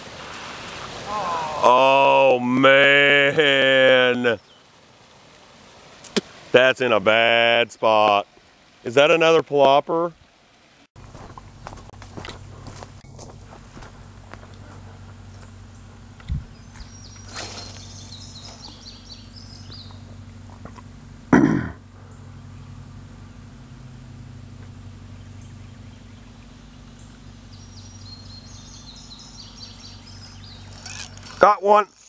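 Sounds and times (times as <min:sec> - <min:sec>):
birds chirping: 0:01.2 - 0:04.8, 0:12.4 - 0:32.0
low hum: 0:11.0 - 0:31.4.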